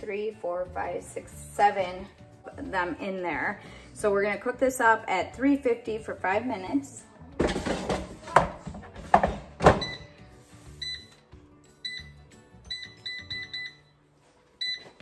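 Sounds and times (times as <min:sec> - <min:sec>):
basket clunking shut: 0:07.4 - 0:09.9
control panel beeps: 0:10.8 - 0:11.2, 0:11.8 - 0:13.9, 0:14.6 - 0:15.0.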